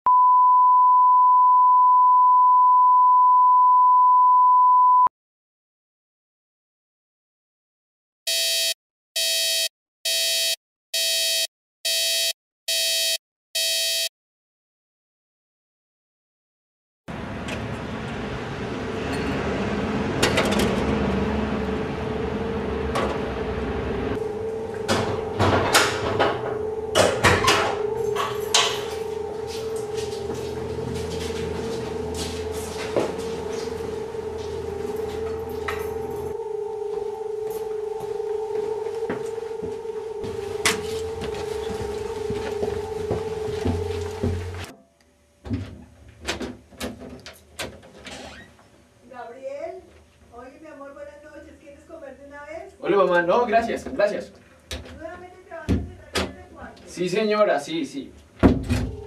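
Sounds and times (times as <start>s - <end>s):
steady hum: 21.0s - 44.7s
steady test tone: 24.1s - 44.7s.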